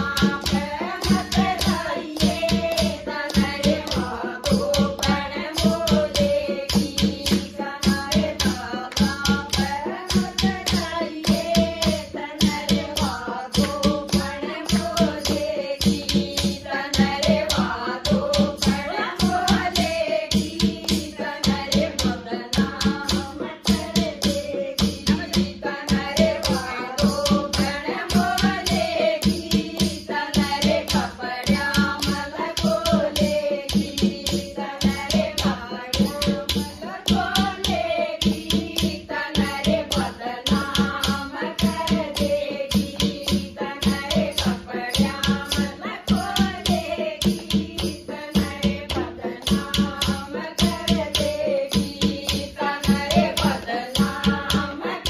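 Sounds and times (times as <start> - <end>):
hand drum beat: 0.0 - 55.0
rattle shaking: 0.0 - 55.0
women singing devotional song: 0.0 - 55.0
hand clapping: 8.8 - 9.5.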